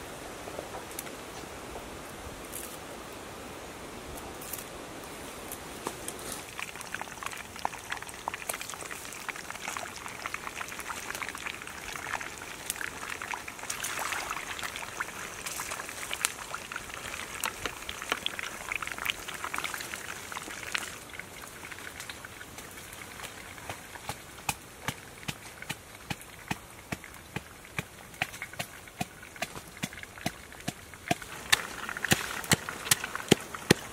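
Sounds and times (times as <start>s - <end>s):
fish sizzling in a frying pan: 6.4s - 23.3s, 31.0s - 33.8s
crackling and popping fat: 6.4s - 33.9s.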